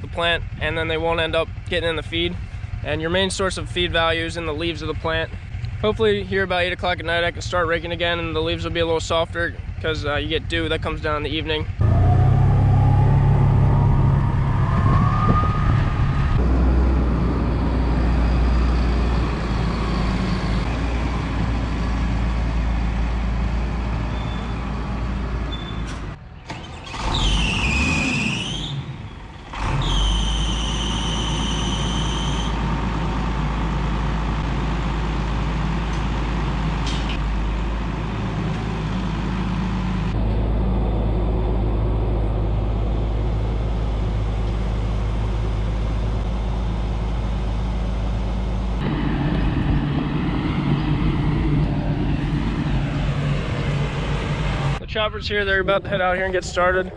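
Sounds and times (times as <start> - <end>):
diesel engine running: 0.0 - 56.9
high squeal: 11.8 - 16.4, 17.2 - 20.8, 24.1 - 24.8, 25.5 - 32.6
high-pitched whine: 11.8 - 20.8, 48.2 - 54.8.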